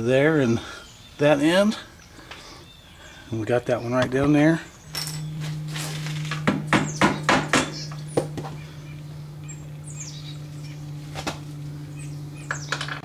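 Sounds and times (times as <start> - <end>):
steady low hum: 0.0 - 13.0
sharp metal knocks: 6.3 - 8.6.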